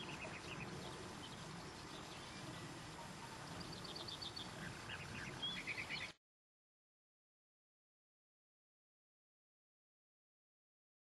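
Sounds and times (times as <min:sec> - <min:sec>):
small birds chirping: 0:00.0 - 0:06.2
wind rustling: 0:00.0 - 0:06.2.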